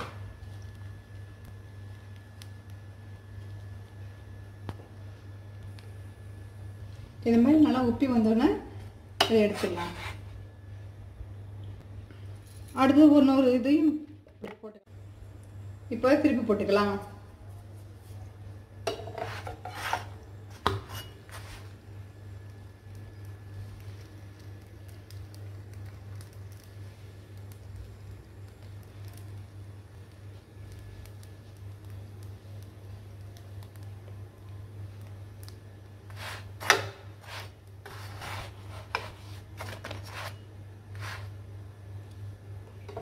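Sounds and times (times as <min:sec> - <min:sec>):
steady low hum: 0:00.0 - 0:43.0
spatula scraping a griddle: 0:09.4 - 0:10.3, 0:18.9 - 0:21.7, 0:36.1 - 0:41.4
metal spatula scraping pan: 0:18.9 - 0:20.2, 0:20.8 - 0:21.5.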